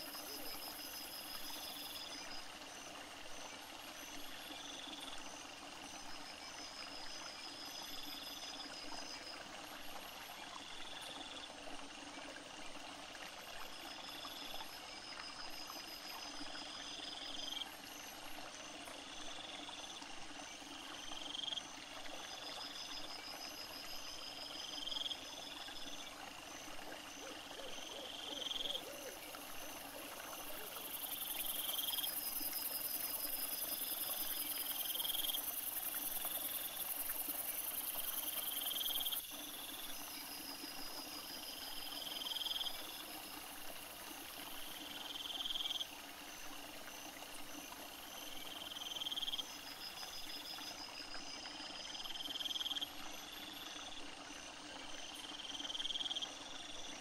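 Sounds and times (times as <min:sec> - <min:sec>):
crickets chirping: 0:00.0 - 0:11.6, 0:13.5 - 0:57.0
high steady insect buzz: 0:28.1 - 0:45.9.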